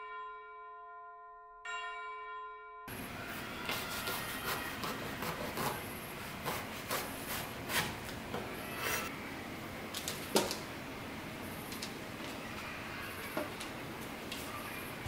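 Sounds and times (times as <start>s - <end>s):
knife slicing eggplant: 3.6s - 9.1s.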